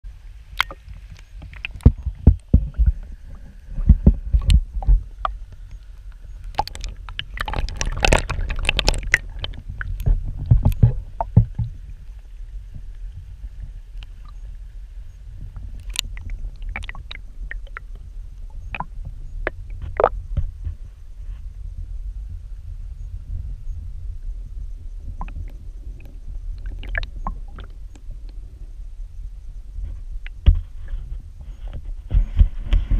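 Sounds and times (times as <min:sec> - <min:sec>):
water flowing underwater rumble: 0:00.0 - 0:32.9
sharp clicks and knocks: 0:03.9 - 0:11.7.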